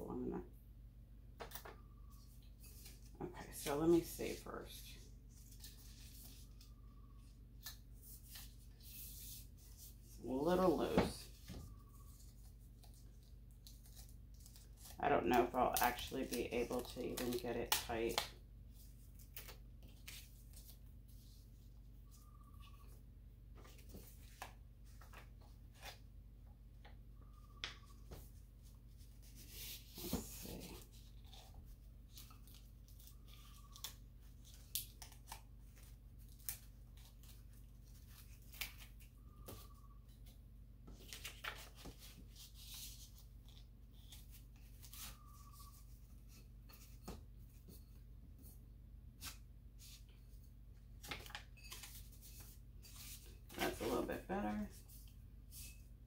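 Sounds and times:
paper rustling and clicking: 40.9 - 42.2.

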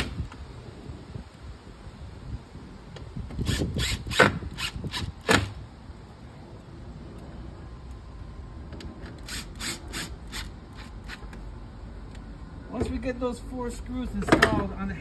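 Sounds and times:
cordless drill driving screws: 3.4 - 5.5, 9.2 - 11.2.

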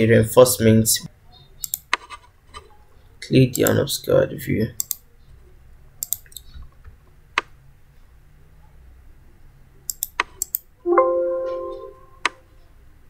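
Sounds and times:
computer mouse clicks: 1.6 - 2.7, 4.8 - 5.0, 6.0 - 7.5, 9.9 - 10.7
short alert chime: 10.9 - 12.5.

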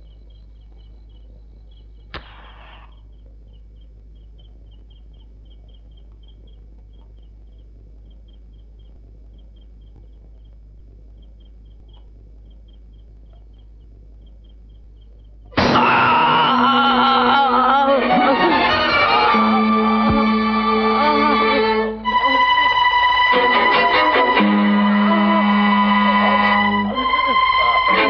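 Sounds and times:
crickets chirping: 0.0 - 15.6
low hum: 0.0 - 28.0
sharp crack with hiss: 2.1 - 2.8, 15.6 - 16.0.

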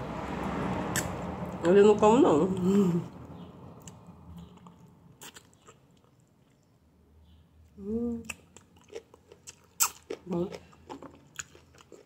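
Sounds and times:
teeth crunching on bone: 4.5 - 6.6, 8.3 - 12.0
person humming: 7.8 - 8.3.

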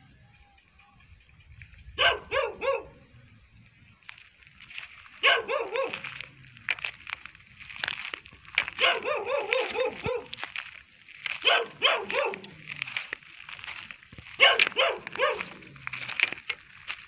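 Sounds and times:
dog barking: 2.0 - 3.2, 5.2 - 6.3, 8.7 - 10.5, 11.4 - 12.6, 14.3 - 15.8.

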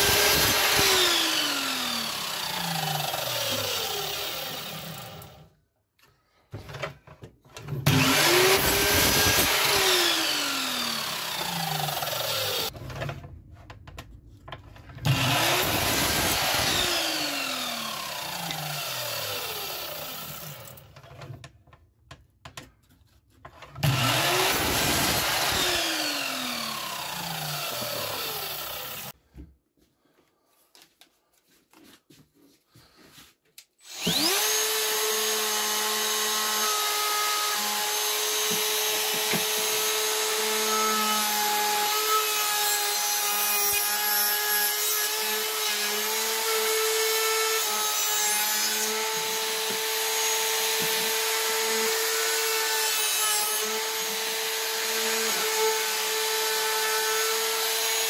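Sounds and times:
router whining: 0.0 - 5.5, 7.5 - 13.2, 13.9 - 21.4, 23.7 - 29.2, 33.8 - 58.0
saw blade spinning down: 23.9 - 29.1, 33.8 - 34.8.

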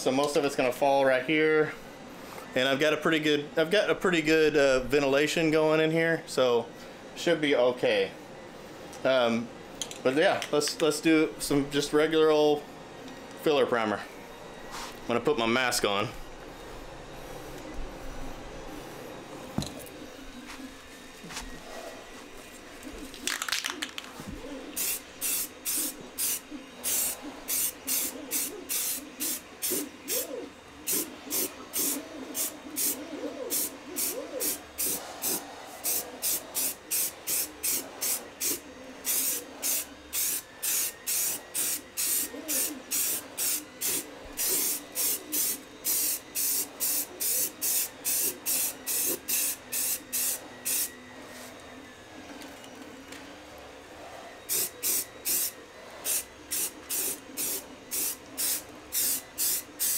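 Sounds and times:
aerosol can spraying in bursts: 24.8 - 30.2, 30.9 - 50.9, 54.5 - 59.9.

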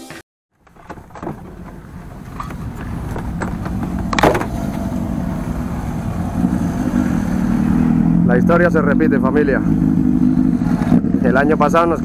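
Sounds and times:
door latch click: 0.6 - 4.9
engine hum: 0.6 - 12.0
vehicle rumble: 0.6 - 12.0.

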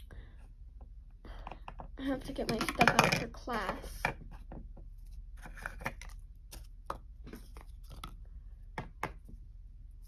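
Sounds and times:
plastic toys tapping on wooden table: 1.4 - 4.9.

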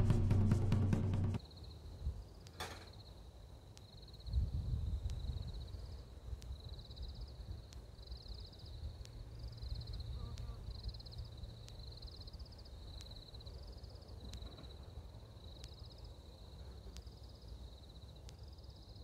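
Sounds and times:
low rumble: 0.0 - 1.4
faint sharp ticks: 3.7 - 19.0.

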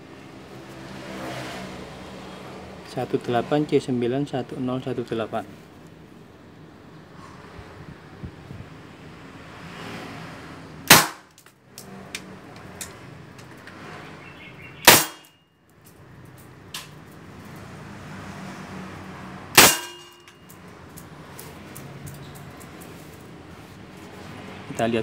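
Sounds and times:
airsoft pistol shots: 10.9 - 11.3, 14.8 - 15.3, 19.6 - 20.2
metallic ring: 19.6 - 20.6.

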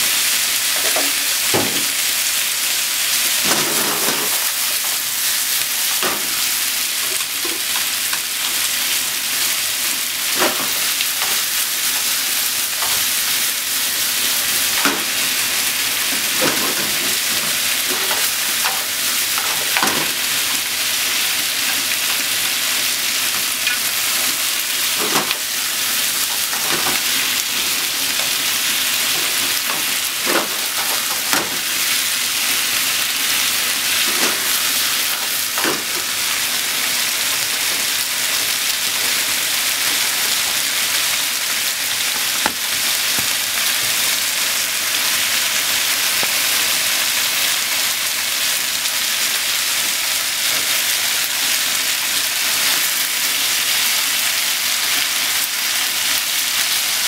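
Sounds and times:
stir-fry sizzling: 0.0 - 57.0.

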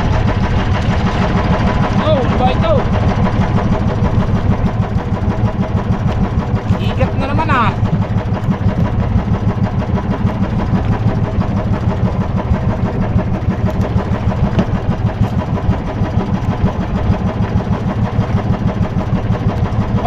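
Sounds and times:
small engine idling: 0.0 - 20.0.

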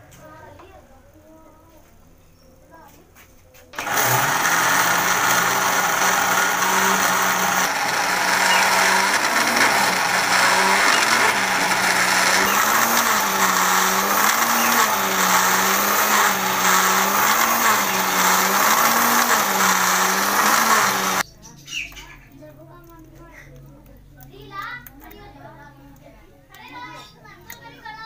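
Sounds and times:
blender motor grinding: 3.8 - 21.2.

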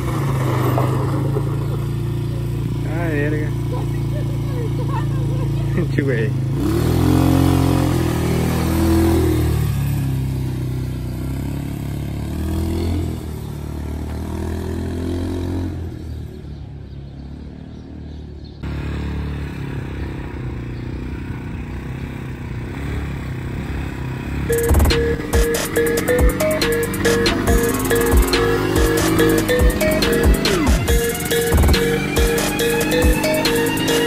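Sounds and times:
rough steady engine noise: 0.0 - 8.8, 18.6 - 34.0
quad bike engine revving: 0.0 - 16.6, 17.4 - 34.0.

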